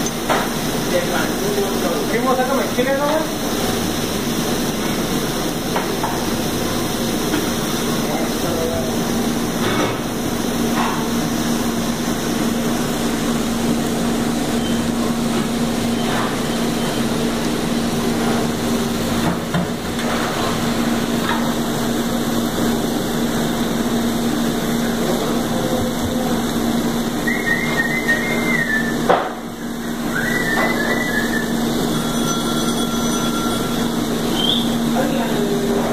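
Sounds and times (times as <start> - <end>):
short high chirps: 30.2 - 34.8.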